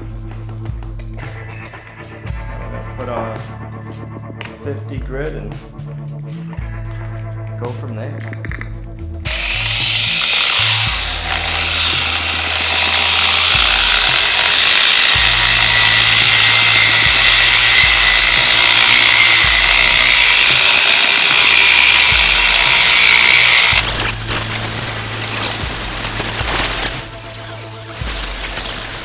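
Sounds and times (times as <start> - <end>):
angle grinder whining: 9.2 - 29.0.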